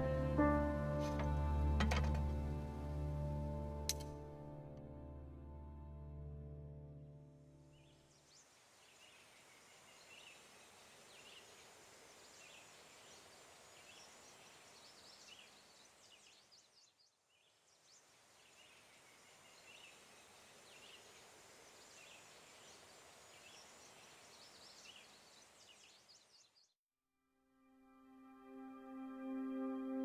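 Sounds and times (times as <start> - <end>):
steady background hiss: 7.8 - 16.6, 17.4 - 26.3.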